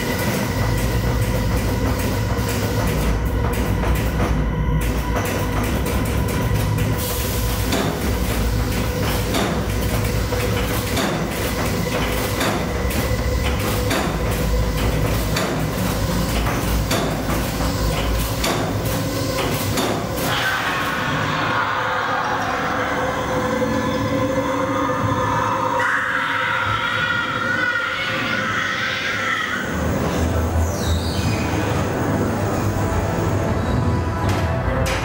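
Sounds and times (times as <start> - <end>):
electrical hum: 0.0 - 35.0
ride car rumbling on track: 0.0 - 35.0.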